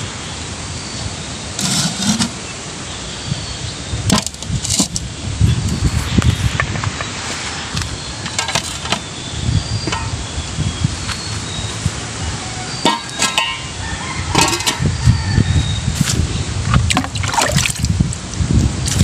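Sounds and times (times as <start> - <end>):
metal basin knocks and clanks: 9.8 - 10.2, 12.8 - 15.0.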